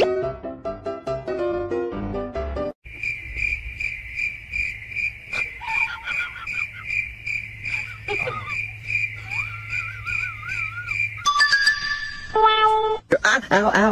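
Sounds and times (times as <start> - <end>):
piano-like music: 0.0 - 2.8
cricket chirping: 2.8 - 12.4.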